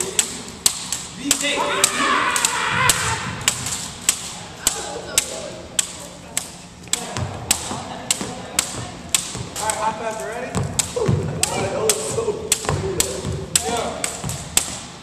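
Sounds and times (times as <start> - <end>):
jump ropes slapping wooden floor: 0.0 - 14.9
voices chattering: 4.2 - 14.0.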